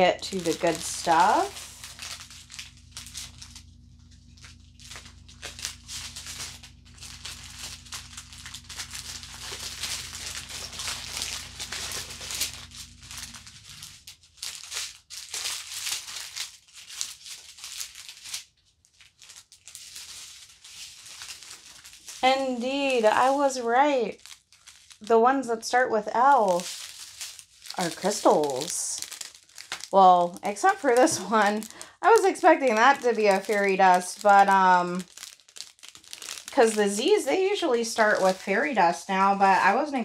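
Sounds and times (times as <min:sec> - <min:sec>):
plastic bags crinkling: 0:00.0 - 0:40.0
small resin beads rattling: 0:00.2 - 0:03.6, 0:04.3 - 0:25.1, 0:26.2 - 0:38.5.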